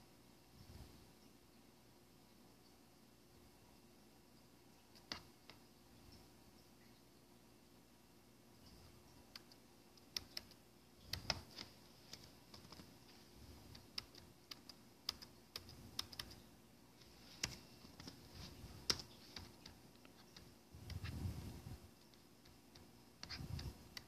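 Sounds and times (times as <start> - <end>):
typing on computer keyboard: 9.3 - 12.9, 13.6 - 16.4.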